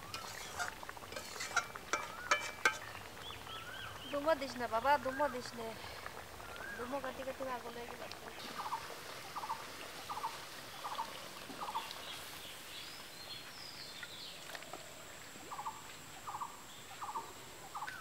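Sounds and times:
thin bird whistles: 6.4s - 6.9s.

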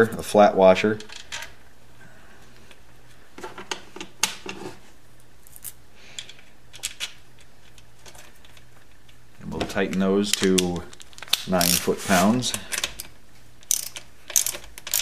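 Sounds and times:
faint steady hum: 0.0s - 15.0s
small metallic clicks: 12.5s - 15.0s.

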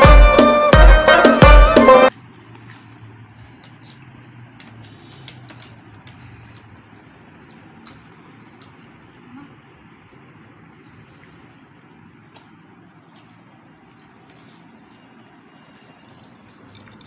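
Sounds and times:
spoons clicking on steel bowls: 2.2s - 9.9s, 12.3s - 17.0s
crisp shells cracking: 2.2s - 10.2s, 14.6s - 17.0s.

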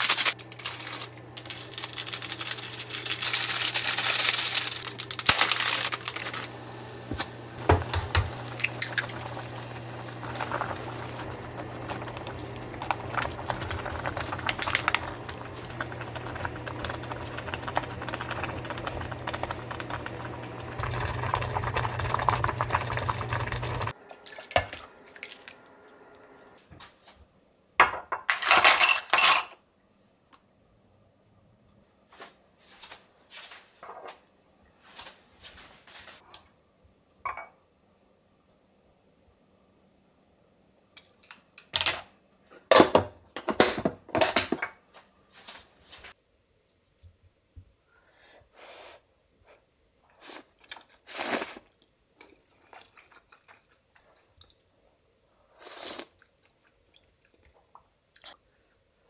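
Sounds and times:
seasoning packet rustling: 0.0s - 19.4s
ramen simmering in a saucepan: 1.4s - 25.1s
steady low hum: 5.2s - 27.7s.

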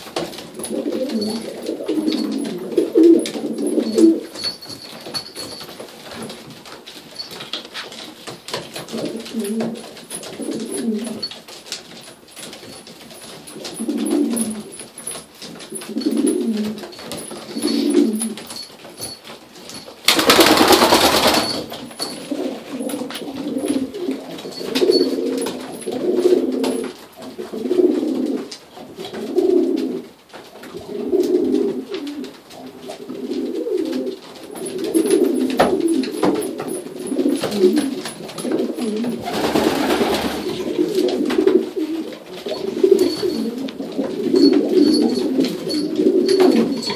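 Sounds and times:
pigeons cooing: 0.6s - 4.5s, 8.9s - 11.3s, 13.5s - 14.8s, 15.7s - 18.4s, 22.0s - 46.9s.

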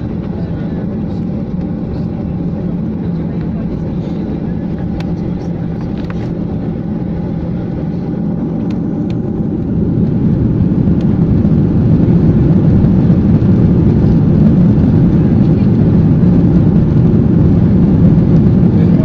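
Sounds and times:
jet engine rumble in cabin: 0.0s - 19.0s.

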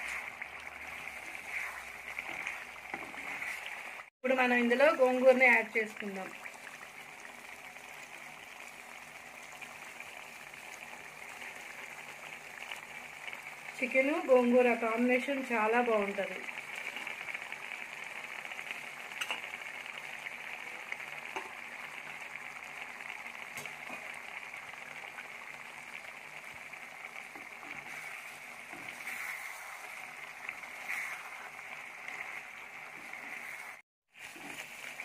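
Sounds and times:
faint crackles: 0.0s - 4.1s, 15.8s - 35.0s
curry sizzling in a pot: 0.0s - 35.0s.

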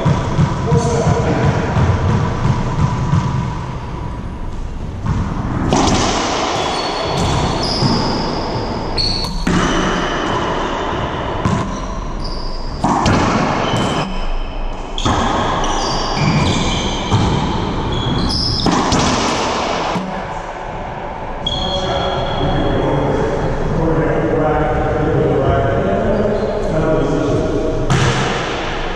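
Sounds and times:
sneakers squeaking on floor: 0.0s - 20.0s, 21.4s - 22.8s
racquet strikes and ball hits: 0.0s - 20.1s, 27.9s - 28.9s.

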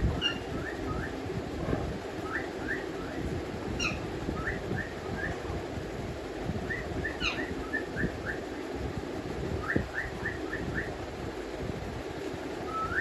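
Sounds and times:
parakeets chirping: 0.2s - 0.8s, 3.8s - 4.6s, 6.8s - 7.9s.

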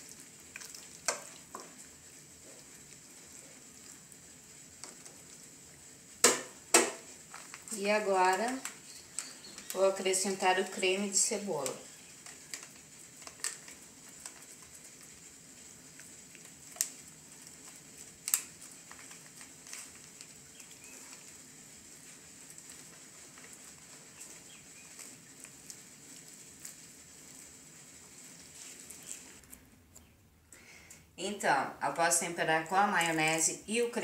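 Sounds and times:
steady faint hiss: 0.0s - 34.0s
hands rubbing raw chicken: 11.6s - 30.1s.

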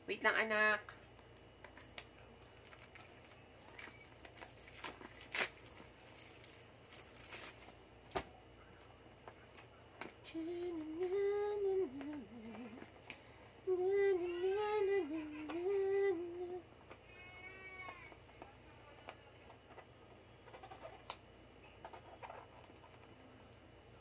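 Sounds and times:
plastic wrapping crinkling: 1.7s - 7.8s
person humming: 10.3s - 13.0s, 13.6s - 16.6s.

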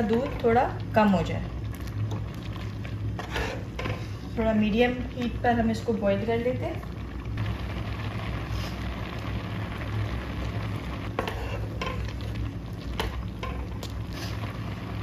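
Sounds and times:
pot bubbling: 0.0s - 15.0s
spoon scraping a pot: 3.2s - 4.1s, 11.2s - 12.2s.

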